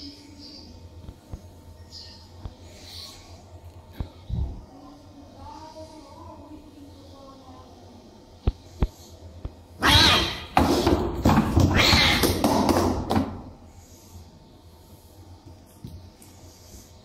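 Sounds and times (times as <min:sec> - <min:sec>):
cats hissing and yowling: 0:09.8 - 0:10.6, 0:11.5 - 0:12.4.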